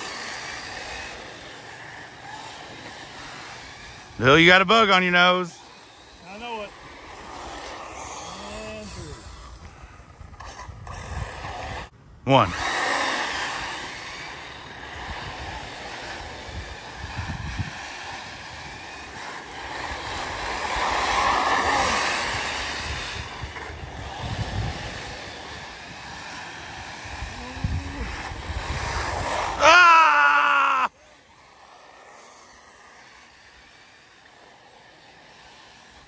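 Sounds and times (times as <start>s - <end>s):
rc car motor whine: 0.0s - 36.0s
wind on microphone: 6.8s - 11.9s, 14.8s - 19.0s, 19.7s - 29.6s.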